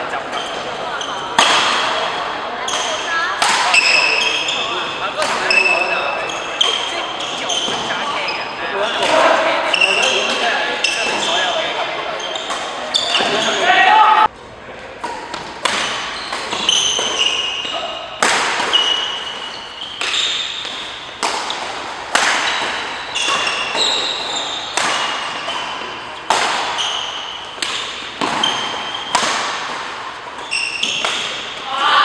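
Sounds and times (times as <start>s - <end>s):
shoes squeaking on court: 0.2s - 13.9s, 15.0s - 31.6s
rackets striking shuttlecock: 15.0s - 31.7s.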